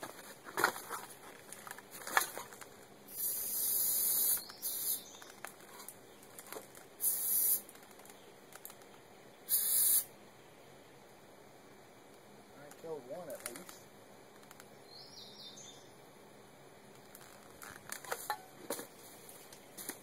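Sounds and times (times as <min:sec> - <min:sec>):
aerosol can spraying: 0:03.1 - 0:05.0, 0:07.0 - 0:07.6, 0:09.5 - 0:10.1.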